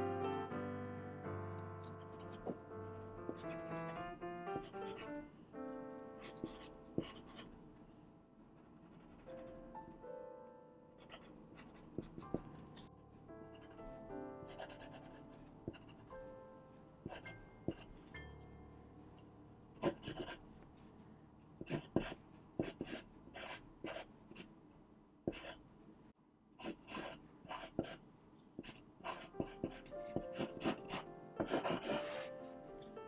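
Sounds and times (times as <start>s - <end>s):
pencil sketching on paper: 1.5s - 4.0s, 4.6s - 5.2s, 6.2s - 7.6s, 8.6s - 9.6s, 11.0s - 12.5s, 13.1s - 18.1s, 19.8s - 20.6s, 21.6s - 24.5s, 25.3s - 25.6s, 26.6s - 28.0s, 28.6s - 32.5s.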